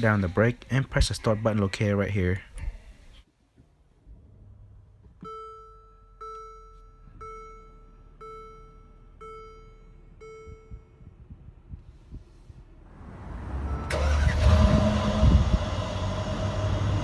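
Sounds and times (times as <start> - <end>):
dashboard warning chime: 5.2 - 11.3.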